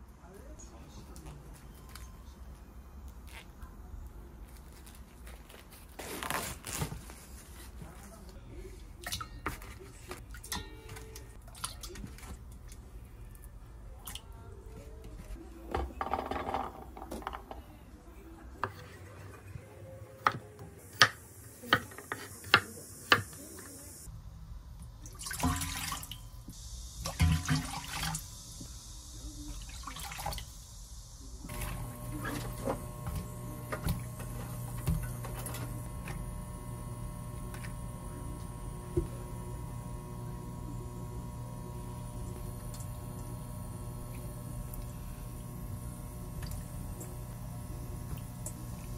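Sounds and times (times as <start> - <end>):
water sloshing in a bowl: 8.9 - 14.5, 25.0 - 26.3, 27.0 - 28.2, 29.4 - 30.5
steady low hum: 23.9 - 48.9
water pouring into steel pot: 25.1 - 26.2, 27.0 - 28.2.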